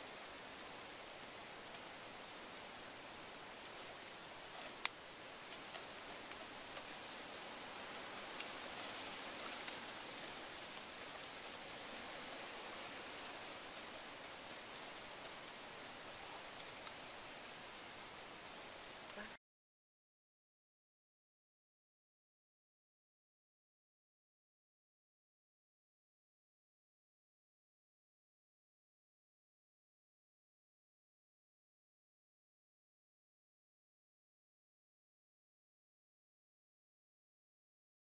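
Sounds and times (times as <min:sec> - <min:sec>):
faint steady hiss: 0:00.0 - 0:19.4
bamboo skewers clicking: 0:04.5 - 0:06.9.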